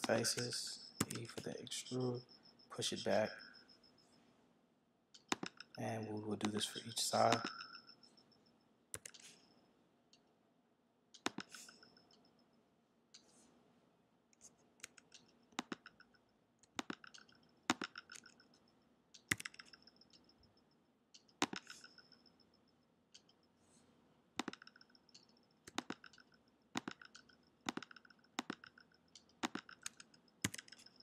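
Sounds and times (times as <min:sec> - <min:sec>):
computer mouse clicks: 0:00.0 - 0:02.0, 0:05.2 - 0:07.9, 0:08.9 - 0:10.3, 0:11.2 - 0:12.3, 0:13.2 - 0:13.4, 0:14.4 - 0:18.6, 0:19.2 - 0:20.4, 0:21.2 - 0:22.4, 0:23.1 - 0:23.5, 0:24.4 - 0:31.0
keystrokes: 0:00.0 - 0:02.2, 0:05.2 - 0:07.9, 0:08.9 - 0:09.5, 0:11.2 - 0:12.3, 0:14.4 - 0:18.6, 0:19.2 - 0:20.4, 0:21.2 - 0:22.2, 0:24.4 - 0:31.0.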